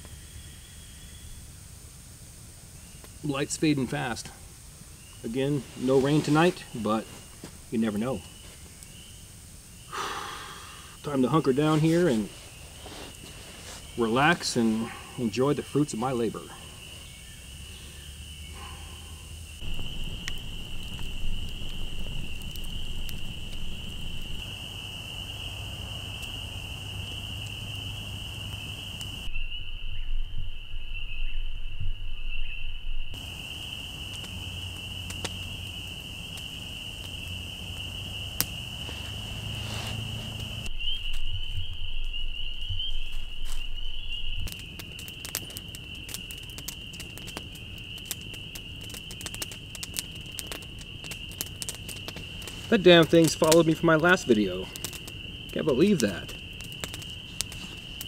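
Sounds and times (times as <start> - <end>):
campfire crackling and popping: 1.8 - 18.8, 19.5 - 29.3, 33.1 - 58.0
high-pitched night chorus trilling: 33.1 - 58.0.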